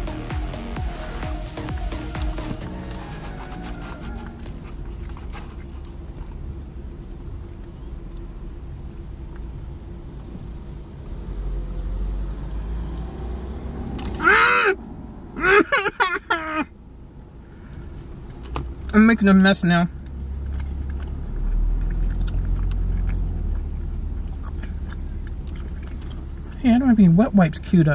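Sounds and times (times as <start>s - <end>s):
deep kick drums: 0.0s - 3.3s
electronic music with steady beat: 0.0s - 4.4s
vehicle rumble in cabin: 0.0s - 27.9s.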